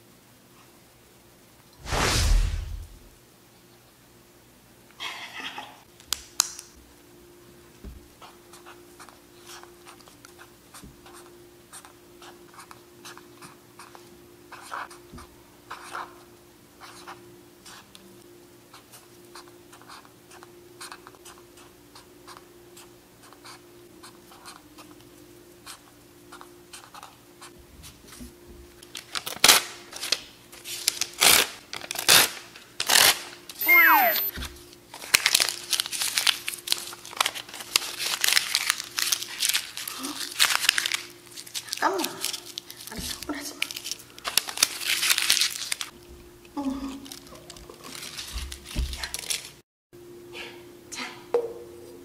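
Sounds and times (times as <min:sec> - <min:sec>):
marker scratching on paper: 0:15.7 - 0:16.2
notepad rustling: 0:28.9 - 0:33.1, 0:34.9 - 0:45.9, 0:47.1 - 0:49.6.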